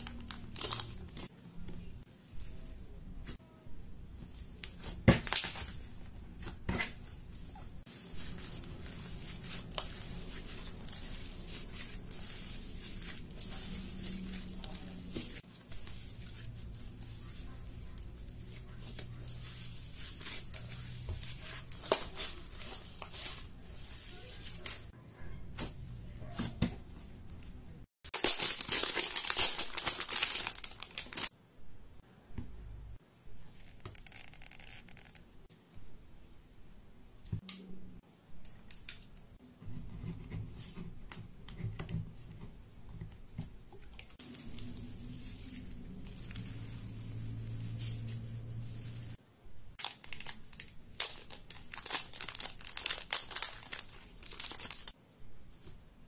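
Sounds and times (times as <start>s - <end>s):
slime squishing and crackling: 4.4s - 24.9s, 28.1s - 31.3s, 49.8s - 55.0s.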